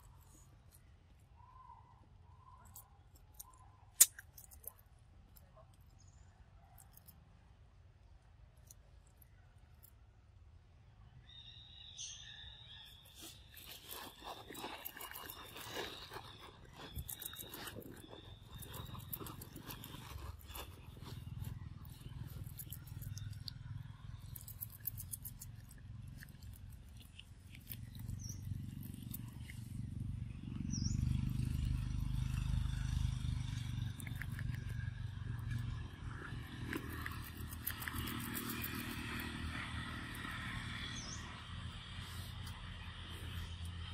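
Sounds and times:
soft crackling and rustling: 0:13.0 - 0:23.6.

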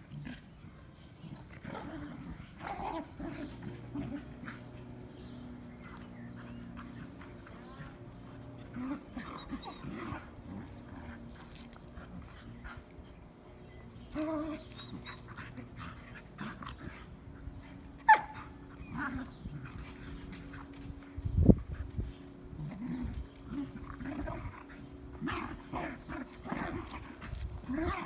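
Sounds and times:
dogs yipping and whining: 0:08.6 - 0:28.0
dog yelping: 0:18.0 - 0:18.4.

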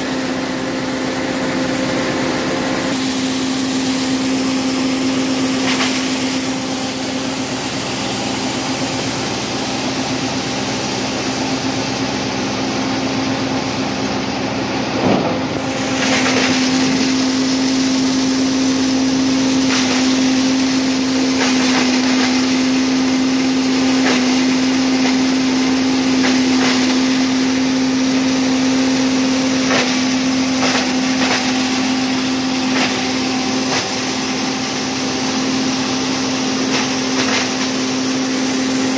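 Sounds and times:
grinding mill humming: 0:00.0 - 0:38.9
corn cobs grinding: 0:15.0 - 0:38.9.

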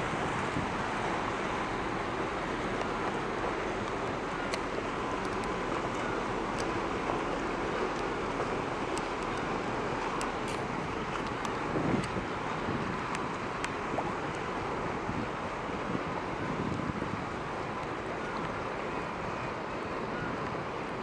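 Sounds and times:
faint steady whine: 0:00.0 - 0:21.0
ferry engines rumbling: 0:00.0 - 0:21.0
wind on microphone: 0:10.6 - 0:18.3.

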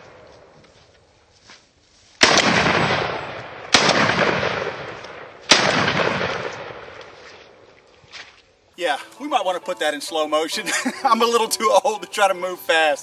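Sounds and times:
shotgun shots: 0:02.2 - 0:07.1.

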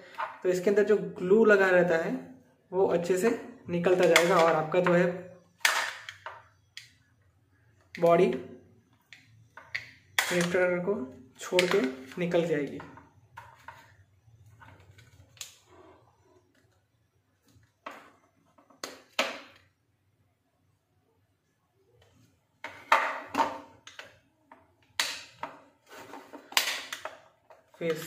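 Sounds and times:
plastic clicks and snaps: 0:15.0 - 0:15.6, 0:26.5 - 0:27.2.

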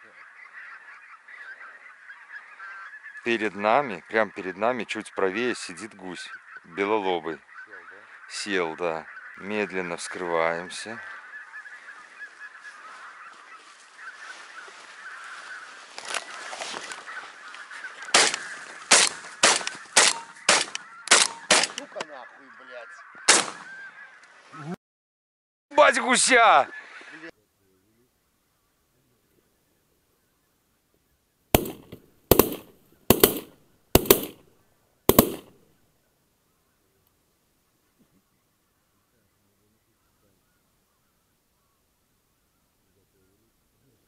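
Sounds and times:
distant geese honking: 0:00.0 - 0:24.8, 0:31.6 - 0:34.4, 0:35.1 - 0:35.6
shotgun shots: 0:18.1 - 0:21.8, 0:23.3 - 0:23.7, 0:31.6 - 0:34.4, 0:35.1 - 0:35.6.

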